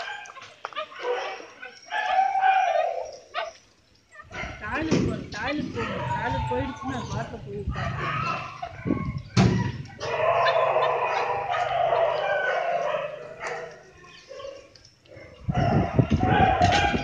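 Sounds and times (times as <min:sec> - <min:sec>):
puppy howling: 0:01.0 - 0:03.6, 0:05.8 - 0:13.9, 0:15.2 - 0:17.0.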